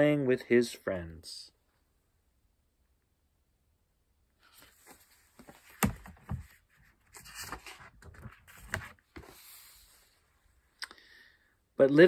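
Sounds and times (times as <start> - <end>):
paper rustling: 4.4 - 10.2
knocks on book: 5.7 - 6.5.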